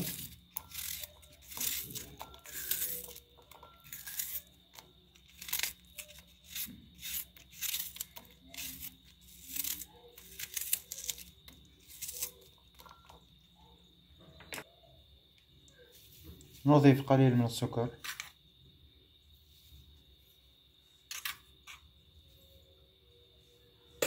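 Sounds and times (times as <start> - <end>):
knife slicing onion: 0.0 - 13.1.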